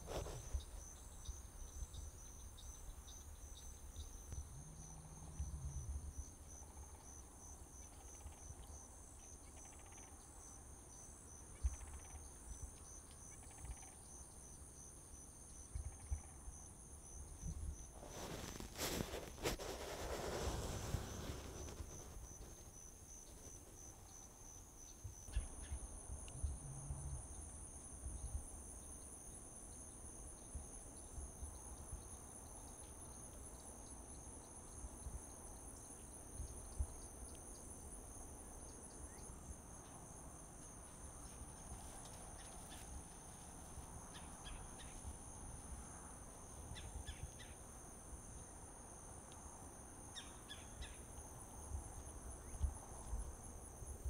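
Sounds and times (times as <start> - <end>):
insects trilling: 0.0 - 54.0.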